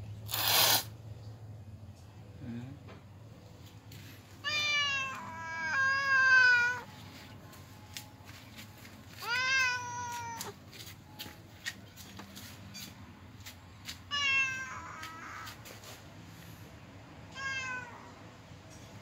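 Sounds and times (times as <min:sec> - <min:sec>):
cat meowing: 0:04.4 - 0:06.9, 0:09.2 - 0:10.6, 0:14.1 - 0:15.6, 0:17.3 - 0:18.2.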